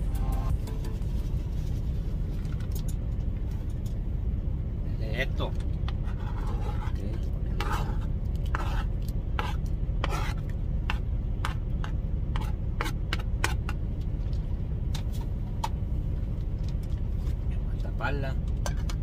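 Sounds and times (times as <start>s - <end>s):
truck cab rumble: 0.0s - 19.0s
fork scraping cutting board: 6.0s - 13.6s.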